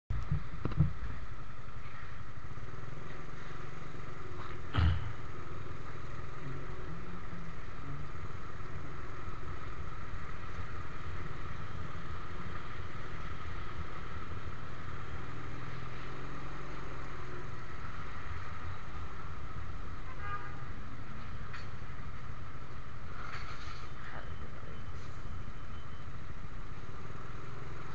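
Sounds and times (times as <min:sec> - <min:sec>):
motorcycle engine running: 0:00.1 - 0:24.6
loud thump: 0:04.7 - 0:05.1.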